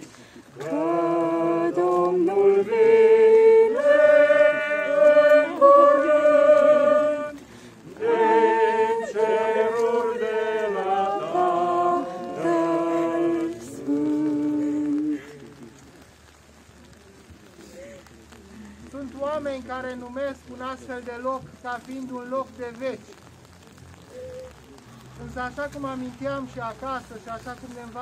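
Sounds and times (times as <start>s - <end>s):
voices singing a slow hymn: 0.0s - 16.3s.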